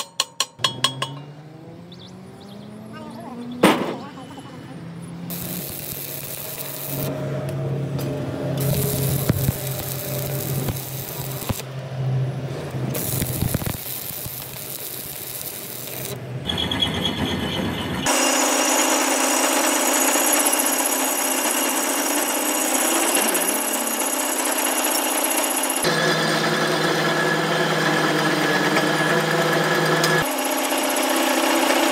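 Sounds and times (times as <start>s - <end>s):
power tools working on steel: 5.3s - 7.2s, 8.3s - 11.7s, 12.9s - 16.2s, 18.1s - 31.9s.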